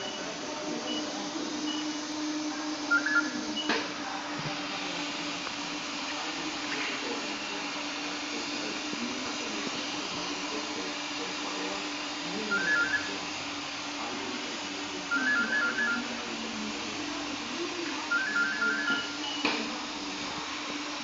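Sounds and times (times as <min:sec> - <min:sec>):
gas cutting torches hissing: 0:00.0 - 0:21.0
electronic trilling ring: 0:02.9 - 0:03.7, 0:18.1 - 0:19.4.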